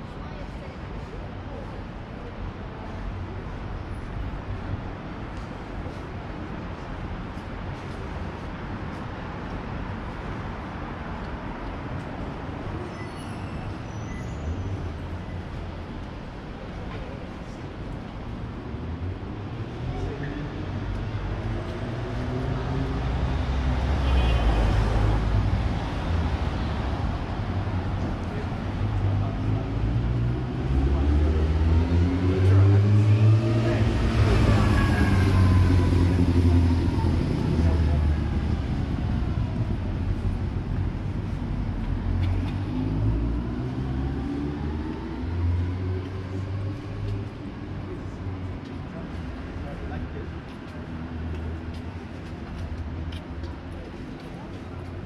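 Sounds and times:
vehicle engine rumble: 0:14.6 - 0:55.0.

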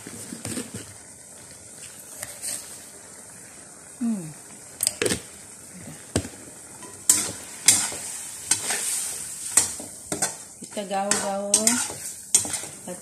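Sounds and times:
meat sizzling in a wok: 0:00.0 - 0:13.0
metal ladle clinking and scraping wok: 0:06.8 - 0:12.9.

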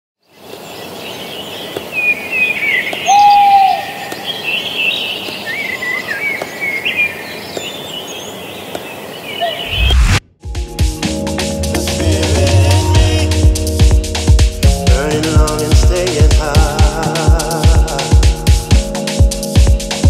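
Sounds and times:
birds chirping and warbling: 0:00.2 - 0:10.0
sudden whoosh: 0:09.6 - 0:10.5.

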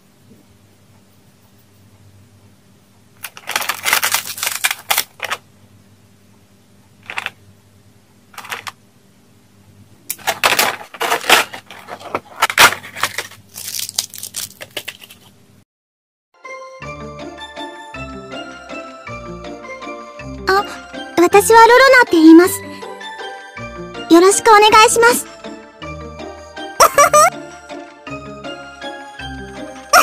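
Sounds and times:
packaging crinkling and rustling: 0:03.2 - 0:05.4, 0:07.0 - 0:07.4, 0:08.3 - 0:08.8, 0:10.1 - 0:15.4.

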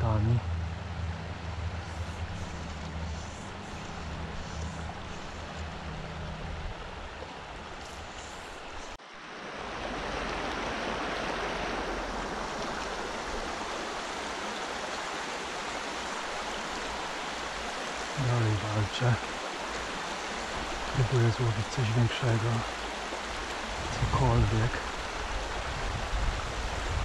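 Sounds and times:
stream running over stones: 0:01.1 - 0:27.0.

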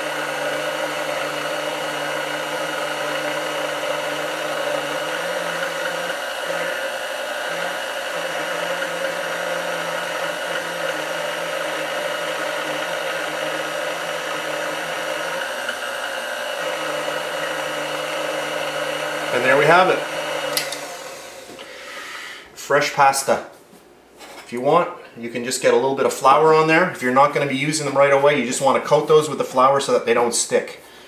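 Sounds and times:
stand mixer motor running: 0:00.0 - 0:21.7.

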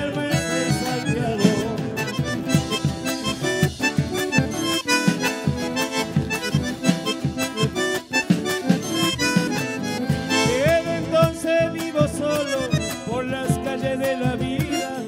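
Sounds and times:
person singing: 0:00.0 - 0:03.3, 0:10.3 - 0:15.0
acoustic guitars: 0:00.0 - 0:15.0
held melody line: 0:00.0 - 0:15.0
steady drum beat: 0:00.0 - 0:15.0.

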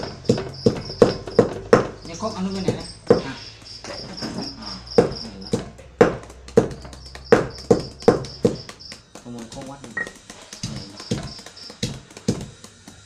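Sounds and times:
high pulsing chirp: 0:00.0 - 0:05.8, 0:06.6 - 0:09.1, 0:09.9 - 0:12.0
knife chopping papaya: 0:00.0 - 0:13.0.

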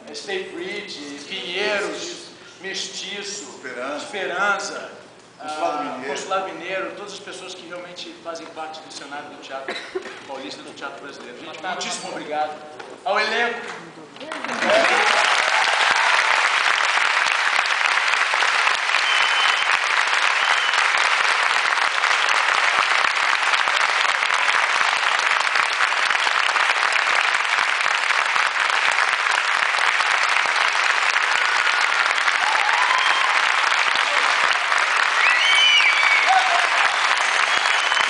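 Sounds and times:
audience applauding: 0:14.3 - 0:38.0.

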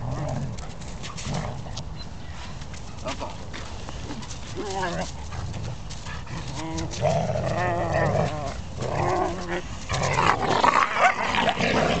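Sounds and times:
dogs play-fighting: 0:00.0 - 0:12.0
dogs wavering vocal sounds: 0:06.2 - 0:12.0.

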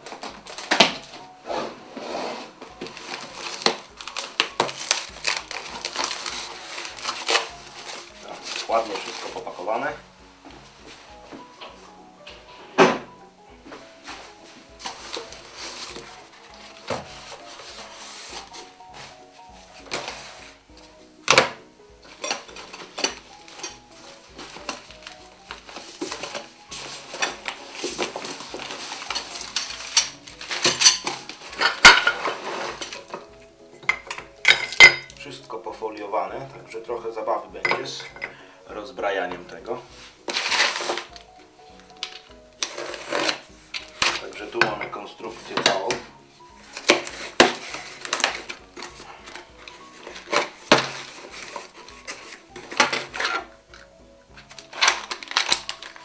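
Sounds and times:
packaging scraping and crackling: 0:00.0 - 0:10.0, 0:14.0 - 0:20.6, 0:21.3 - 0:35.5, 0:39.7 - 0:56.0
plastic wrap rustling: 0:00.0 - 0:56.0
quiet background music: 0:00.0 - 0:56.0
metal parts clinking and knocking: 0:22.1 - 0:23.8, 0:27.0 - 0:33.2
knife cutting cardboard box: 0:42.6 - 0:44.2.

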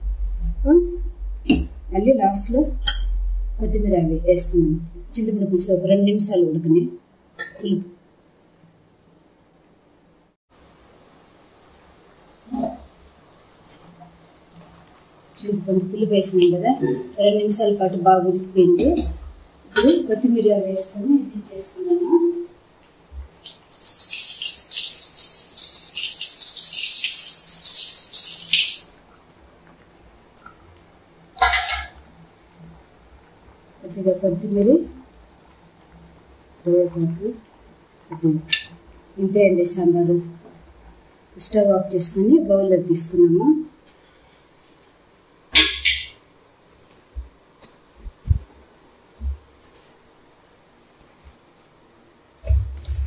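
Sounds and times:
stew simmering in a pan: 0:22.9 - 0:32.8.

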